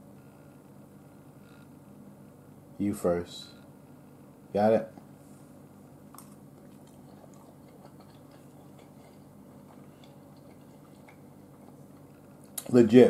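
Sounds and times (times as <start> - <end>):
low room hum: 0.0 - 13.0
chewing with wet clicks: 6.1 - 12.8.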